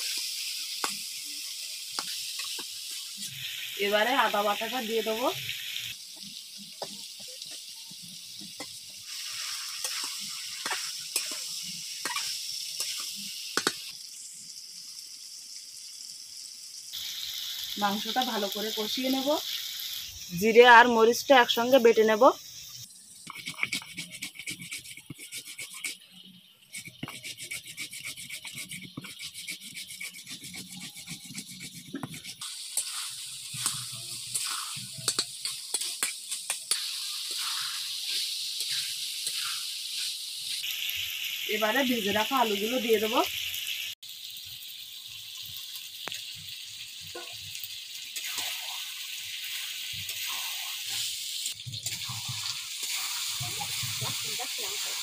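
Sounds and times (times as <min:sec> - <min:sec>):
chicken sizzling in a wok: 0:00.0 - 0:55.0
metal spatula scraping a pan: 0:08.5 - 0:13.1, 0:23.2 - 0:40.6, 0:51.8 - 0:55.0
stone roller scraping grinding stone: 0:23.2 - 0:26.0, 0:26.7 - 0:32.4.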